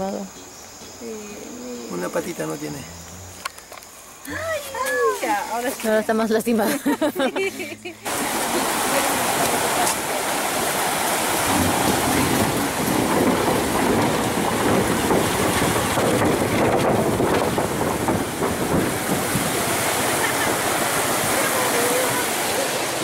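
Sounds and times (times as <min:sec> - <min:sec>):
river water rushing over rocks: 0:07.4 - 0:23.0.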